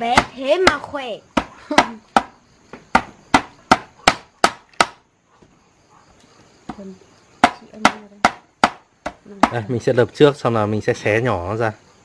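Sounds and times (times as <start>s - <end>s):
knife pounding on cutting board: 3.0s - 5.0s, 7.4s - 9.6s.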